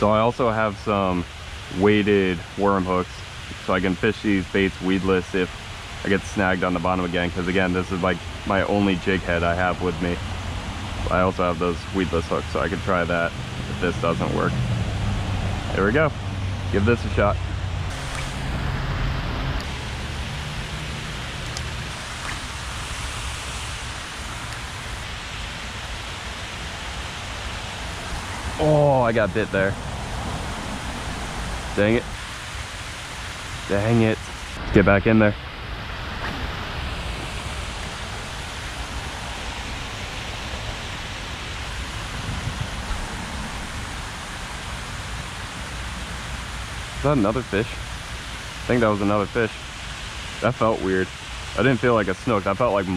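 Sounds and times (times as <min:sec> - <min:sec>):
water rushing over spillway: 0:00.0 - 0:52.9
low rumble: 0:13.7 - 0:32.2.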